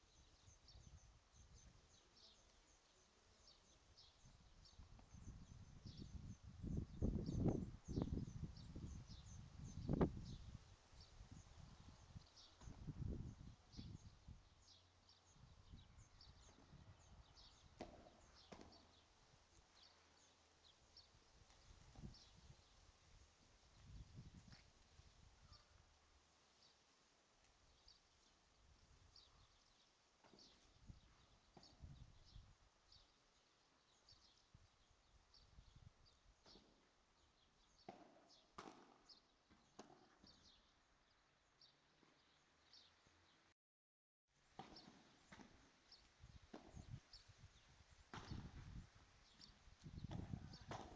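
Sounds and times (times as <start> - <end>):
small birds chirping: 0.0 - 43.5, 44.4 - 50.9
racket striking ball: 17.8 - 18.9, 37.9 - 39.0, 44.6 - 45.6, 48.1 - 48.4, 50.1 - 50.9.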